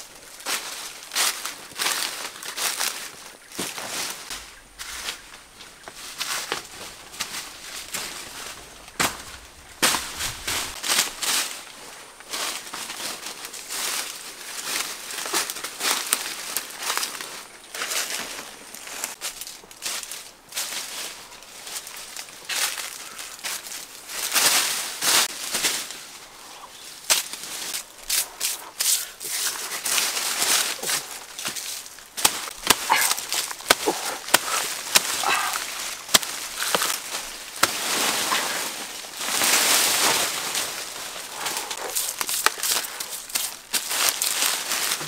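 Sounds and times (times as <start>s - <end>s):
footsteps crunching through dry leaves: 0.0s - 45.0s
machete chopping plant stem: 32.2s - 37.0s.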